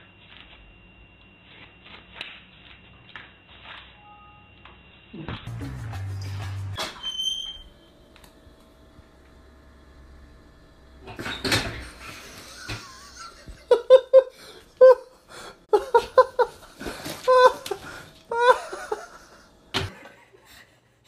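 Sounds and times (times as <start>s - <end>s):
person laughing hard: 12.0s - 20.4s.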